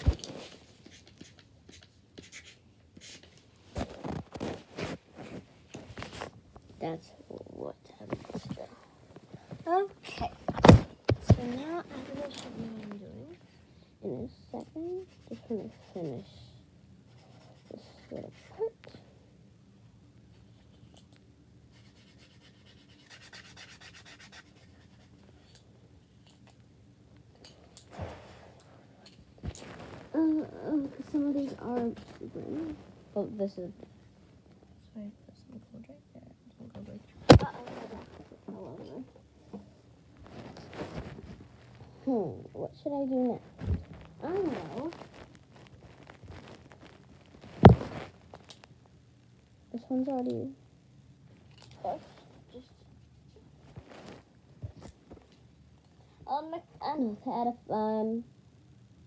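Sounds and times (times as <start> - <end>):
paint marker scratching: 0.4 - 3.4, 15.0 - 16.2, 17.1 - 18.6, 21.7 - 25.2
rustle of handling: 8.0 - 13.4, 29.4 - 34.6, 37.2 - 39.1, 40.1 - 42.2, 43.0 - 48.8, 53.6 - 55.4
light scratches: 9.4 - 13.4, 29.4 - 34.0, 37.2 - 39.1, 40.2 - 42.0, 43.1 - 48.7.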